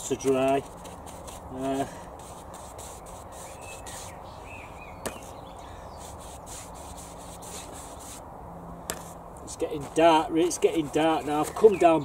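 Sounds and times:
paintbrush swishing on wood: 0.2s - 4.2s, 6.0s - 8.2s, 8.9s - 11.9s.

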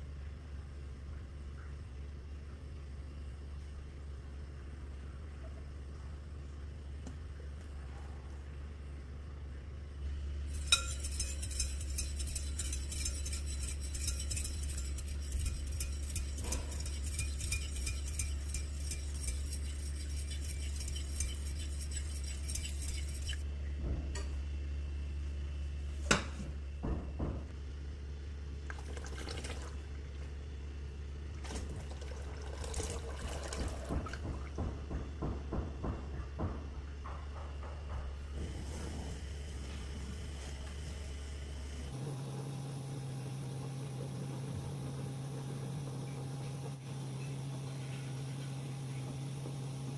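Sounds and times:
batter sloshing: 10.5s - 23.4s
spoon clinking in a ceramic bowl: 10.5s - 23.4s
spoon scraping bowl: 10.5s - 23.4s.

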